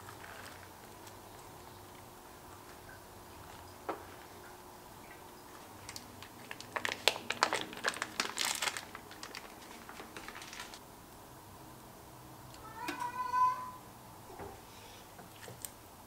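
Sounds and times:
wrapper crinkling and rustling: 0:00.0 - 0:01.2, 0:05.8 - 0:10.8.

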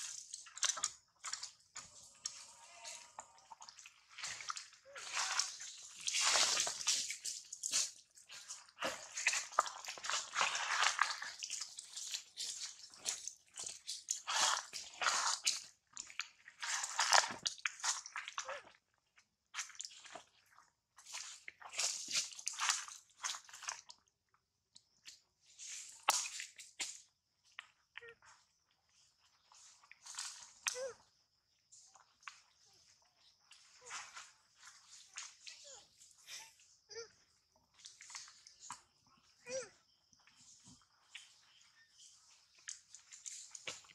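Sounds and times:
dry leaves and twigs crunching: 0:00.0 - 0:18.1, 0:29.4 - 0:30.6, 0:40.2 - 0:43.9.

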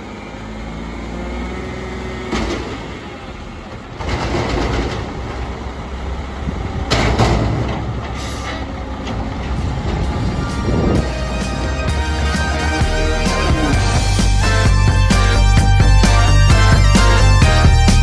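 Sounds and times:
diesel garbage truck engine running: 0:00.0 - 0:18.0.

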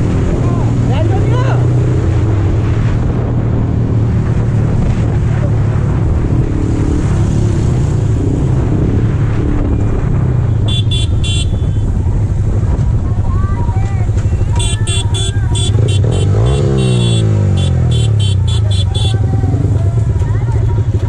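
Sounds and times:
motorcycle engine cruising: 0:00.0 - 0:21.0
wind noise on microphone: 0:00.0 - 0:21.0
horn toots: 0:10.6 - 0:12.0, 0:14.4 - 0:19.5.

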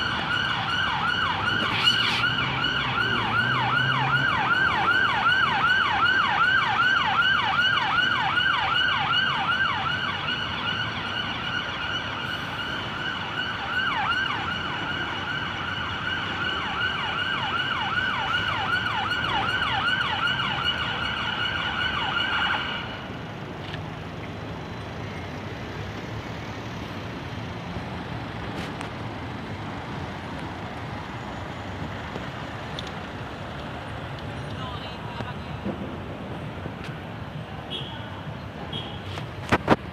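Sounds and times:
ambulance siren yelping: 0:00.0 - 0:23.1
city traffic noise: 0:00.0 - 0:39.9.

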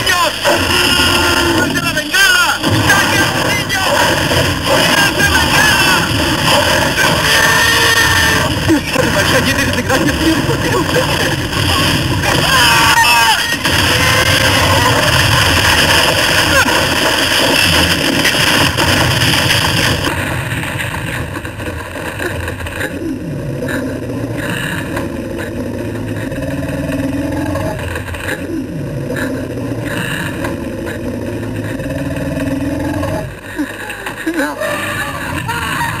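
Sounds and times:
loud rushing noise: 0:00.0 - 0:22.1
dinosaur growling and roaring: 0:00.4 - 0:02.0, 0:02.6 - 0:17.0, 0:22.8 - 0:33.4.

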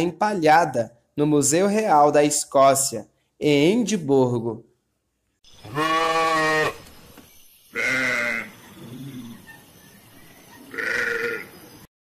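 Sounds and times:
sheep bleating: 0:05.6 - 0:06.8, 0:07.7 - 0:08.5, 0:10.7 - 0:11.5.

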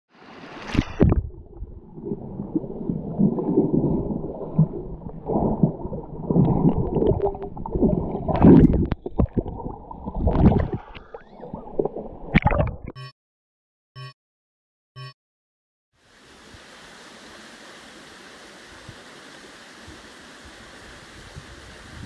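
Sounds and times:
muffled water gurgling underwater: 0:00.8 - 0:12.9.

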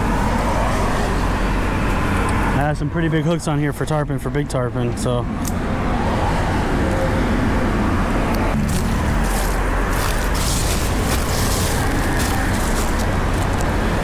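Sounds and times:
road traffic noise: 0:00.0 - 0:14.0
footsteps crunching through dry leaves: 0:08.6 - 0:14.0.

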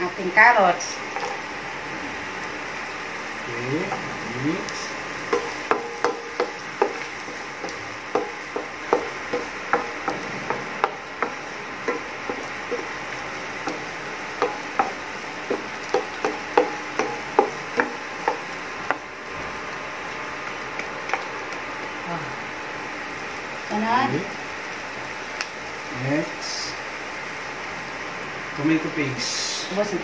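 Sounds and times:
steady low hiss: 0:00.0 - 0:30.0
wooden spatula knocking on pan: 0:05.2 - 0:19.0.

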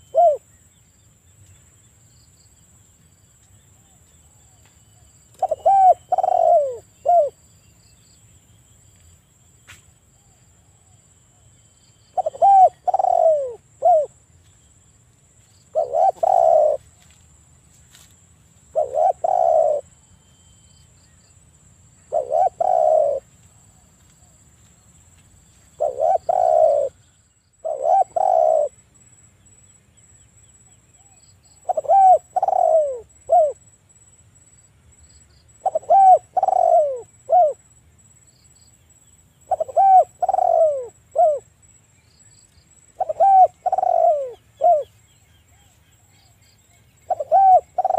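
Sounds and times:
dove cooing: 0:00.0 - 0:00.4, 0:04.3 - 0:07.4, 0:12.1 - 0:14.2, 0:15.7 - 0:17.0, 0:18.7 - 0:20.0, 0:22.1 - 0:24.4, 0:25.8 - 0:28.8, 0:31.0 - 0:33.6, 0:35.6 - 0:37.6, 0:39.5 - 0:41.5, 0:43.0 - 0:45.7, 0:47.0 - 0:47.9.

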